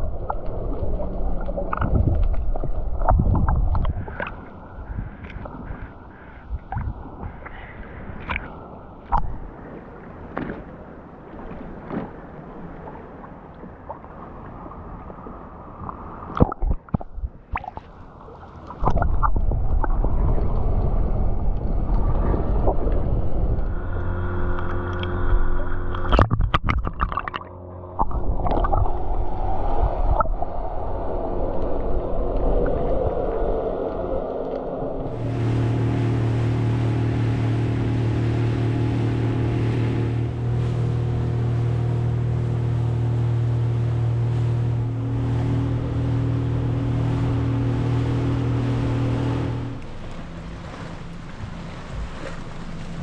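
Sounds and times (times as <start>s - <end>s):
motorboat engine drone: 0.0s - 8.0s, 18.3s - 29.7s, 33.2s - 53.0s
underwater gurgles and clicks: 0.0s - 41.6s, 43.5s - 53.0s
boat running over water: 0.0s - 53.0s.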